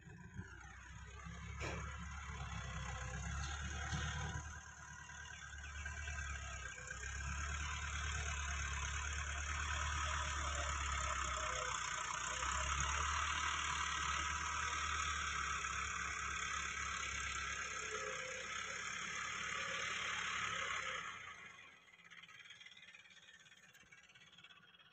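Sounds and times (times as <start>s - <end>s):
diesel tractor engine: 0.0s - 24.9s.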